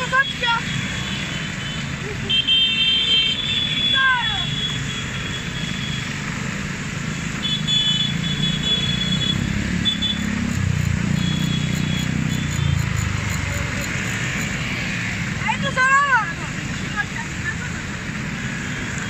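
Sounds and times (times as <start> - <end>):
scooter engines droning: 3.4 - 19.0
tyres hissing on wet road: 11.5 - 19.0.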